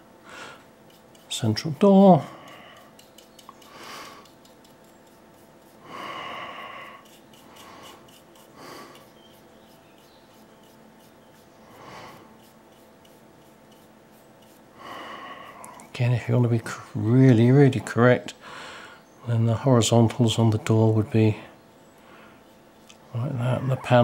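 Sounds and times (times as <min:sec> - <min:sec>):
person breathing: 0:00.2 - 0:00.7, 0:02.3 - 0:03.0, 0:03.6 - 0:04.3, 0:05.8 - 0:09.1, 0:11.7 - 0:12.3, 0:14.8 - 0:15.8, 0:18.4 - 0:19.1.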